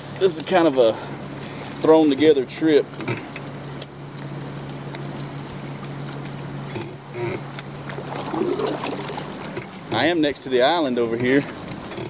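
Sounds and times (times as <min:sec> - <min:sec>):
steady low hum: 0:00.0 - 0:12.0
water and paddle splashes: 0:00.0 - 0:12.0.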